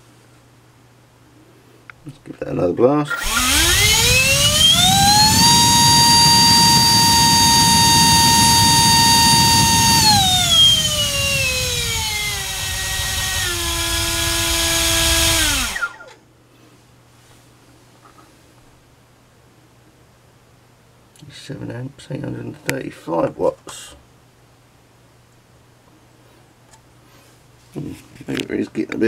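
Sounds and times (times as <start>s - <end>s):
electric ducted fan whining: 0.0s - 29.0s.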